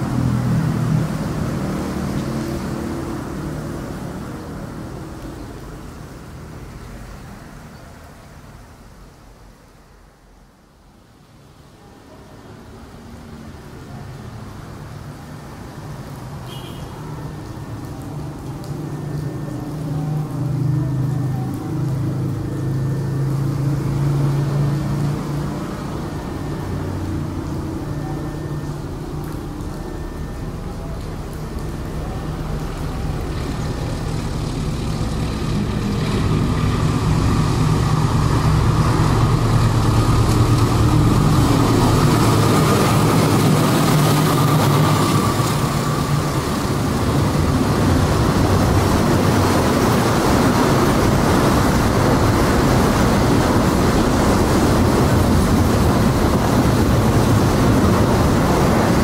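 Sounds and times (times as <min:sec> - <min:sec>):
diesel locomotive engine hum: 0:17.3 - 0:59.0.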